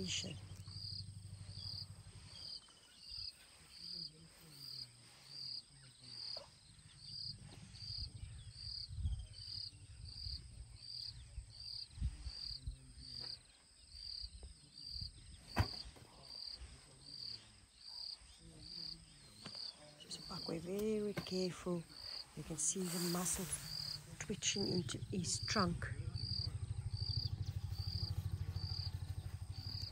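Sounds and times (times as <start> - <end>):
elephant rumbles: 20.3 - 29.9
insect chirping high: 21.8 - 29.9.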